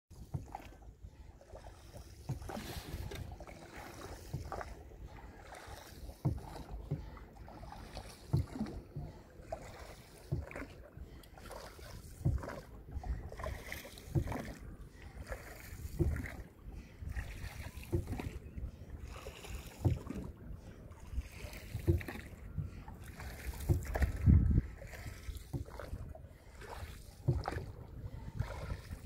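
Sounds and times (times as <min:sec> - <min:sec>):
oar strokes in water: 0:00.1 - 0:29.0
wind rumble on microphone: 0:12.1 - 0:29.0.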